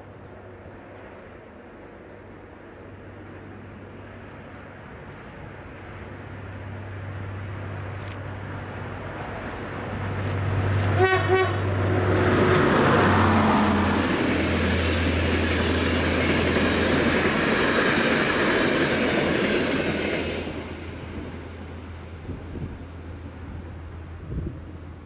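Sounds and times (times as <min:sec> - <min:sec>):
train coaches rushing on rails: 0:02.7 - 0:25.0
train horn blasts: 0:10.9 - 0:12.1.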